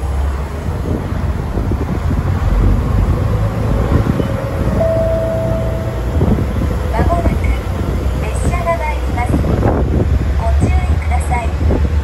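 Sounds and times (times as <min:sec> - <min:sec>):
diesel railcars rumbling: 0:00.0 - 0:12.0
wind buffeting microphone: 0:00.0 - 0:12.0
steady high tone: 0:04.7 - 0:07.1.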